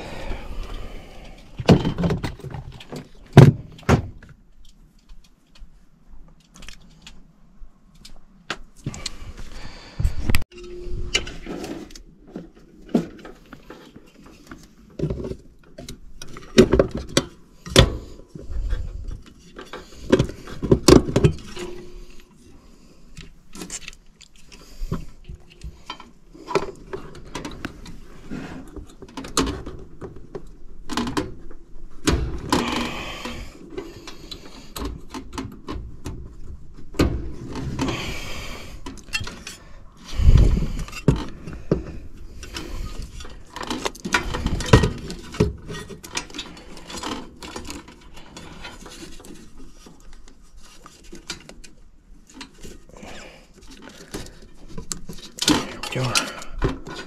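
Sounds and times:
metal clicks and clanks: 38.8 - 39.6.

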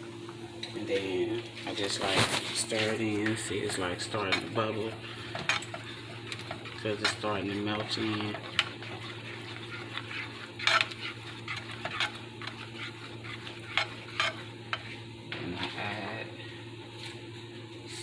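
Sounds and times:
steady low hum: 0.0 - 18.0
spatula scraping sauce in pan: 2.5 - 15.1
sauce bubbling: 3.6 - 15.2.

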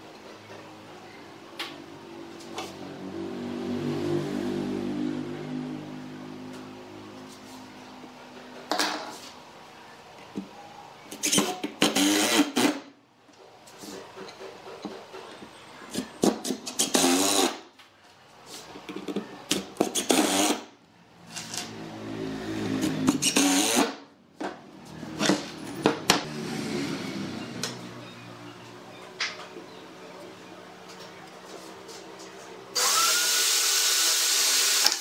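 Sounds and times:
impact driver driving screws into wood: 11.2 - 12.8, 23.1 - 24.0, 32.8 - 35.0.

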